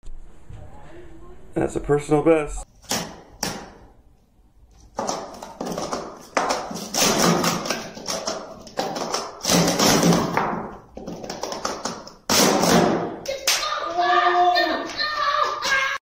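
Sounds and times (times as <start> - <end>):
plastic cups clacking: 4.8 - 13.2.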